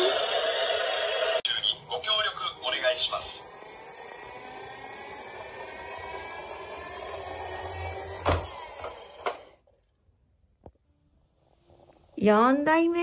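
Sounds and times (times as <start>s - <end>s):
toy truck wheels whirring: 0.0s - 0.4s, 1.5s - 9.7s.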